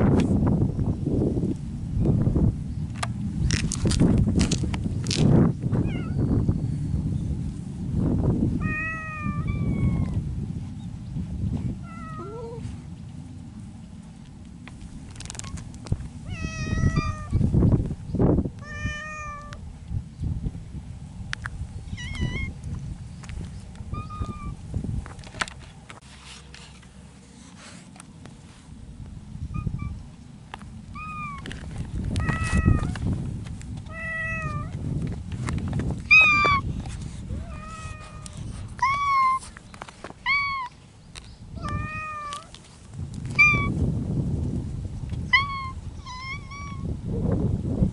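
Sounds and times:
cat meowing: 5.8 - 6.2, 8.6 - 10.2, 11.8 - 12.6, 16.3 - 17.4, 18.6 - 19.6, 21.9 - 22.5, 24.0 - 24.6, 30.9 - 31.5, 32.2 - 33.0, 33.9 - 34.7, 36.1 - 36.6, 37.4 - 39.4, 40.2 - 40.8, 41.6 - 42.5, 43.3 - 43.7, 45.3 - 46.9.

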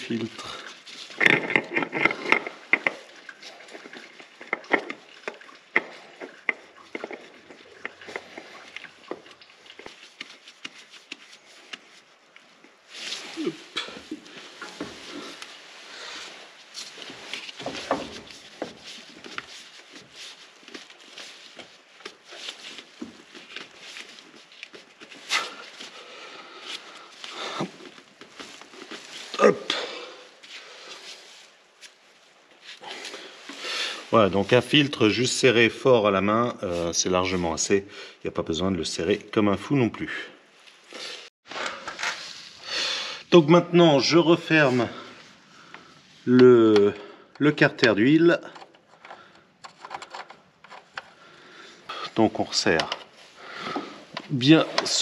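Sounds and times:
gloved hands scraping oil filter: 0.4 - 35.2, 46.7 - 55.0
oil filter clicking and rubbing: 0.9 - 12.8, 46.7 - 51.4.

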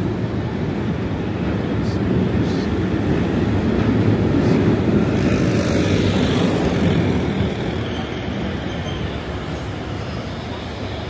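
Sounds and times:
low rumble of street traffic: 0.0 - 11.0
heavy vehicle passing: 4.1 - 8.6.

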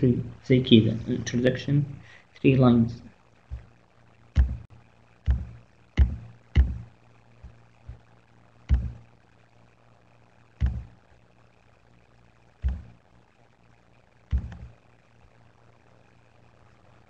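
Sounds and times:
low electrical hum: 0.0 - 17.0
computer mouse clicking: 14.3 - 14.7.

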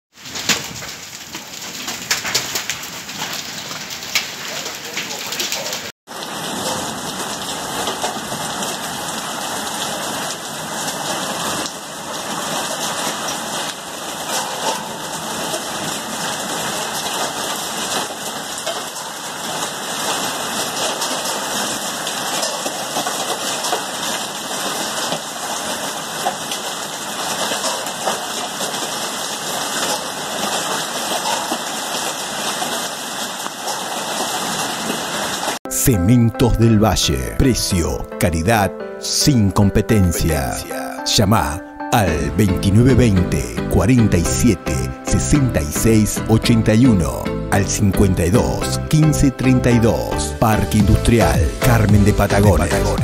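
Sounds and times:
heavy rain and hail hissing: 0.1 - 35.6.

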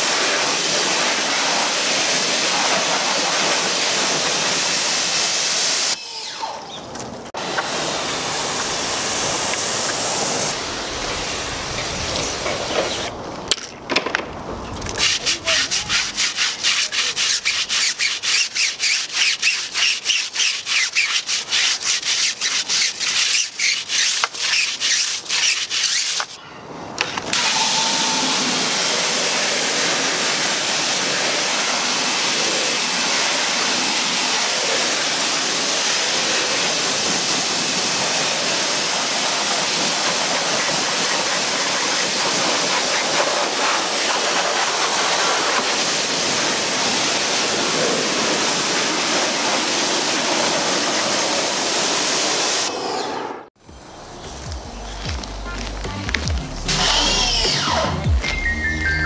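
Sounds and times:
brush scrubbing a tyre: 0.0 - 5.3, 14.9 - 26.4, 28.2 - 52.6
pressure washer jet hissing: 0.0 - 6.0, 7.4 - 13.1, 15.0 - 26.4, 27.3 - 52.8.

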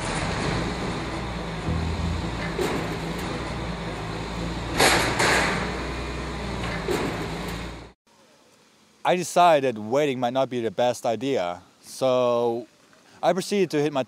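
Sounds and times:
garbage truck engine running: 0.0 - 8.0.

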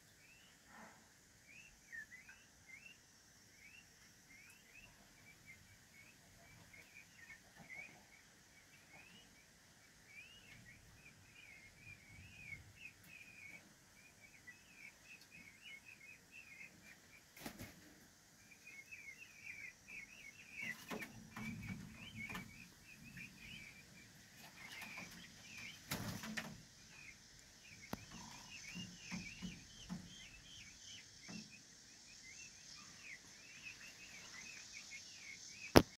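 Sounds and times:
chicks peeping: 0.0 - 36.0
rustles and wing-flaps: 17.3 - 18.0, 24.4 - 26.6.

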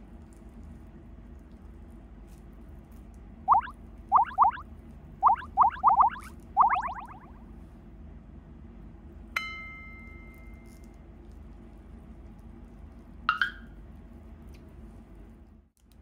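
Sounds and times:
faint room hum: 0.0 - 4.6, 5.2 - 16.0
short pitched blip: 3.5 - 4.6, 5.2 - 7.3.

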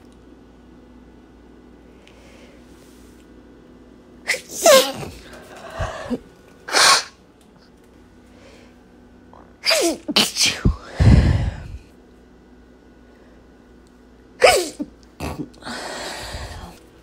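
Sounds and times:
woman sneezing: 4.2 - 5.2, 6.7 - 7.2, 9.6 - 10.7, 14.4 - 14.9.

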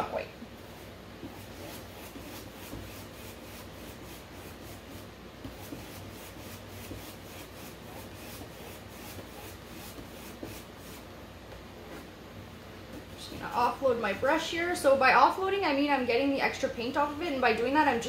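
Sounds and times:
paintbrush scratching on canvas: 0.7 - 11.1.

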